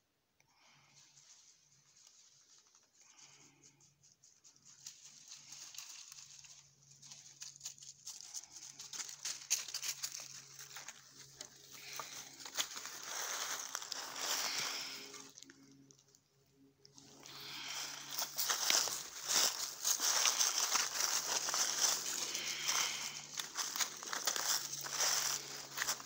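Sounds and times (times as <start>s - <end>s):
footsteps crunching dry leaves: 4.3s - 15.4s, 17.0s - 26.0s.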